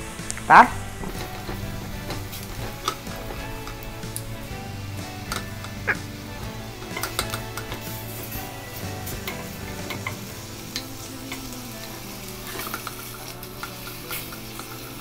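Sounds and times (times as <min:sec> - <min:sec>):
meat sizzling in a pot: 0:00.0 - 0:15.0
tongs clicking against pot: 0:09.2 - 0:15.0.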